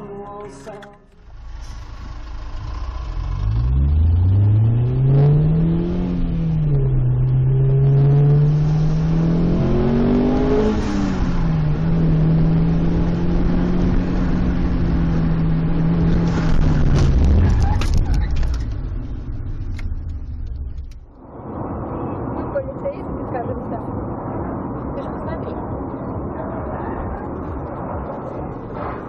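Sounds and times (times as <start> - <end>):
car engine accelerating through gears: 1.4 - 18.8.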